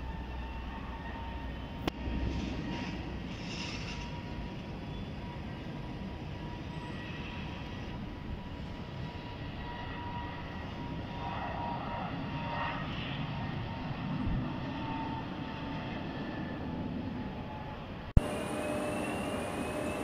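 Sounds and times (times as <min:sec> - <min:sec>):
jet engines roaring: 0:00.0 - 0:20.0
faint steady whine: 0:17.0 - 0:20.0.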